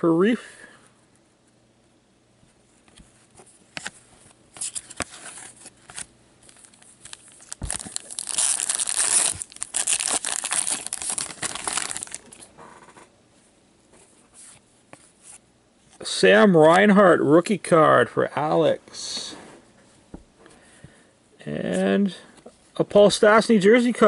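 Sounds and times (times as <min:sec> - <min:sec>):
cards being handled: 0:02.8 - 0:13.0
wrapper tearing and crinkling: 0:04.7 - 0:12.5.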